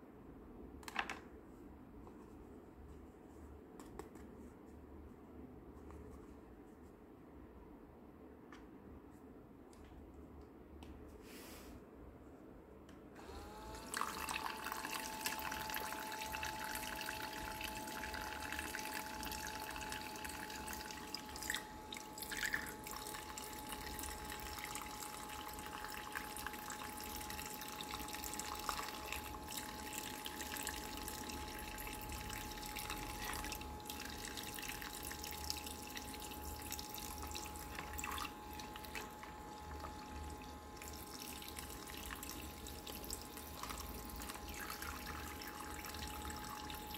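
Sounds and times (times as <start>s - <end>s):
small electric pump whine: 13.2s - 46.9s
water trickling into plastic basin: 13.9s - 46.9s.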